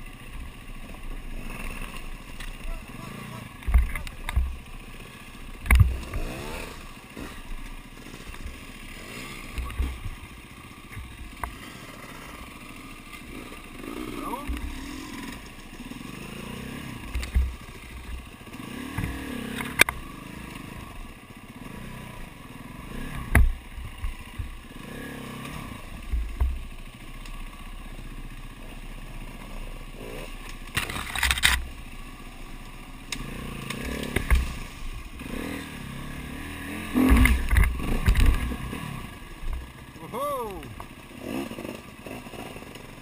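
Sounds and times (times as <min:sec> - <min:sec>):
dirt bike engines revving: 0:00.0 - 0:43.0
bikes knocking over logs: 0:09.4 - 0:11.6, 0:33.1 - 0:34.9, 0:36.8 - 0:38.8.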